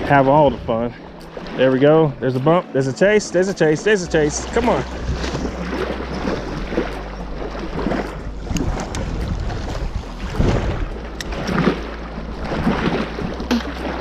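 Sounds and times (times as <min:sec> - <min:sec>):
wind buffeting microphone: 0:00.0 - 0:01.3, 0:04.0 - 0:13.5
waves lapping against rocks: 0:00.0 - 0:14.0.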